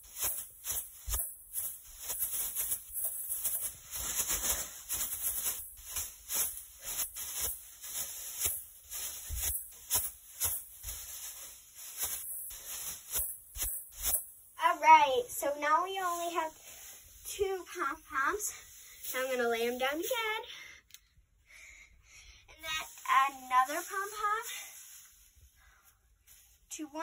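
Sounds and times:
pom-poms rustling and swishing: 0.0 - 20.8, 22.4 - 27.0.

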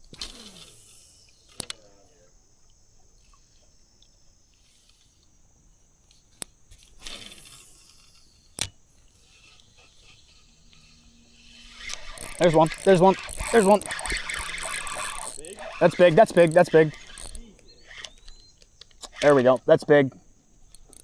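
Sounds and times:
fishing line swishing off reel: 0.0 - 1.7, 6.1 - 19.5
reel bail clicking shut: 11.8 - 19.7, 20.6 - 21.0.

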